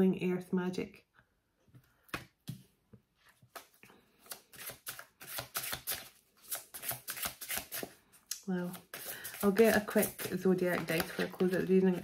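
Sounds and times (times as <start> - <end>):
cards being shuffled: 3.3 - 8.0, 8.6 - 12.0.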